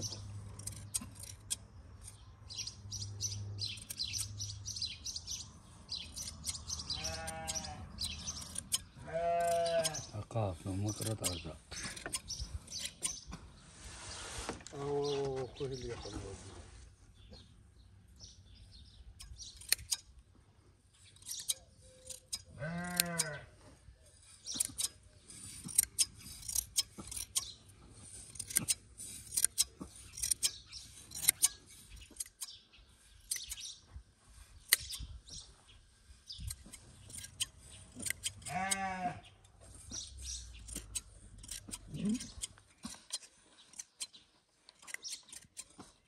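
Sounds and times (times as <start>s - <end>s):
hand shears snipping fleece: 6.0s - 13.3s, 21.2s - 23.4s, 24.3s - 33.8s, 36.3s - 38.9s, 39.5s - 46.0s
sheep bleating: 6.9s - 7.9s, 9.0s - 10.1s, 22.6s - 23.5s, 38.5s - 39.3s.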